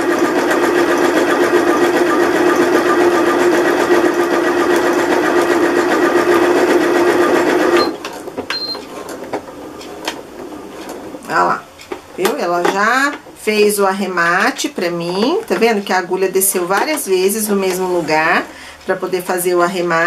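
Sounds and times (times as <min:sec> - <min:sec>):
sewing machine stitching: 0:00.0 - 0:11.3.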